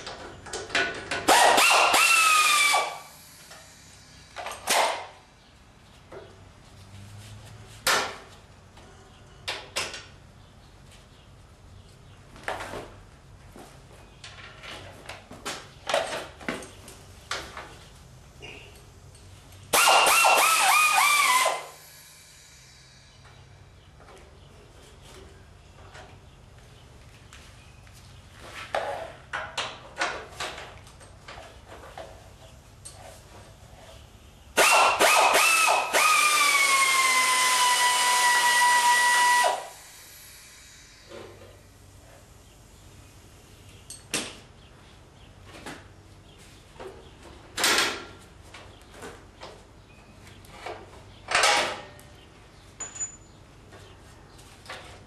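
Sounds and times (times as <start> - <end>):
pneumatic wrench whining: 1.2 - 5.2, 19.7 - 23.3, 34.6 - 41.6.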